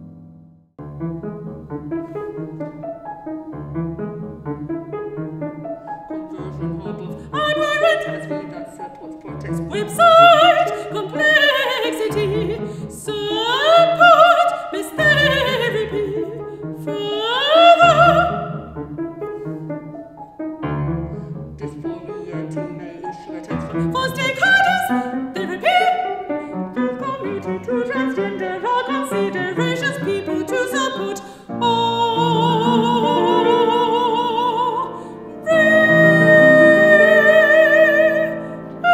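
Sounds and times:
piano accompaniment: 0.0s - 38.9s
woman singing opera: 6.0s - 18.7s, 21.2s - 38.9s.

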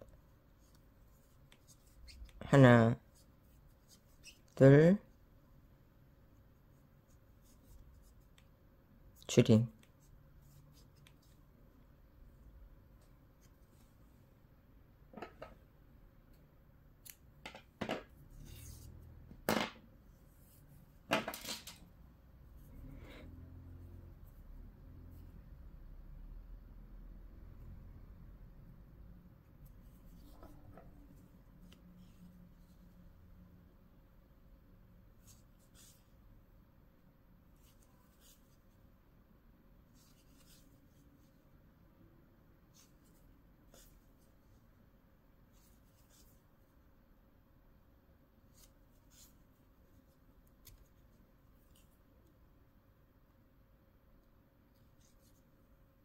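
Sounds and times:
scissors snipping yarn: 17.0s - 17.2s
small tools set down on table: 21.1s - 21.8s.

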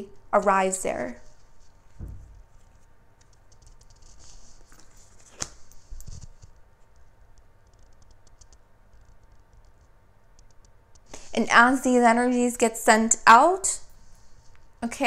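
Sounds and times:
soft thump: 2.0s - 2.4s.

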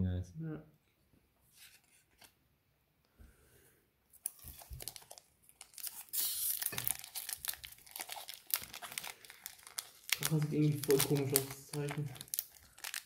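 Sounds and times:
foil wrapper crinkling and tearing: 4.2s - 13.0s.

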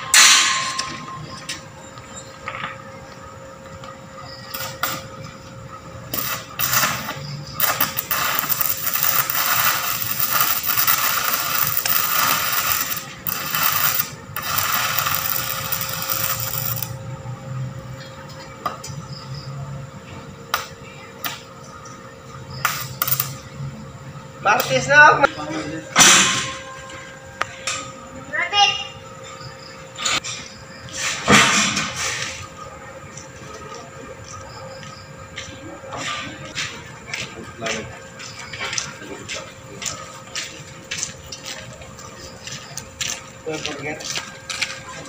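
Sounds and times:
welding arc crackling: 4.4s - 5.1s, 6.0s - 17.0s, 22.6s - 23.4s.

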